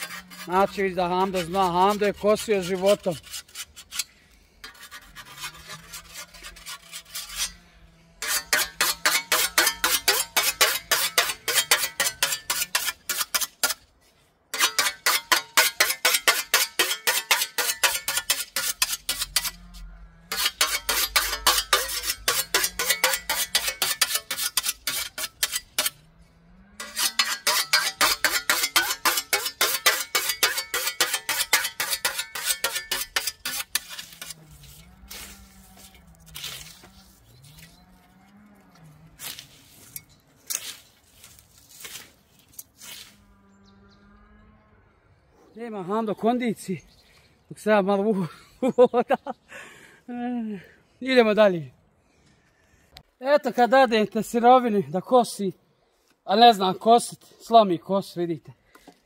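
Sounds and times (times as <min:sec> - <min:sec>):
whetstone scraping scythe blade: 0:00.0 - 0:07.6, 0:08.2 - 0:13.9, 0:14.5 - 0:26.1, 0:26.8 - 0:37.8, 0:39.2 - 0:43.2.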